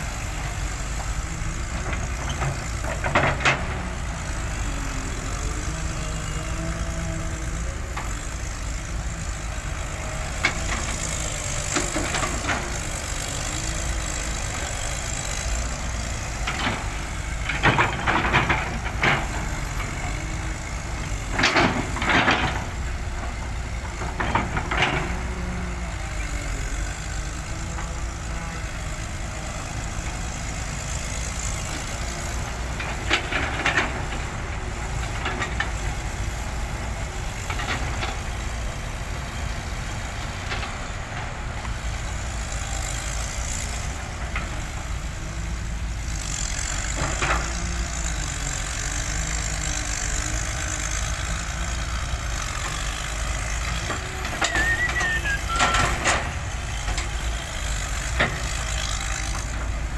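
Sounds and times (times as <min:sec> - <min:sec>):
excavator diesel engine running: 0:00.0 - 0:59.9
brief squeal: 0:54.4 - 0:55.9.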